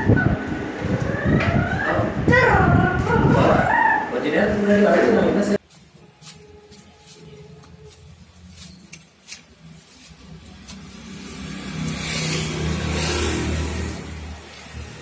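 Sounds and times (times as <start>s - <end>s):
motor vehicle passing by: 9.5s - 15.0s.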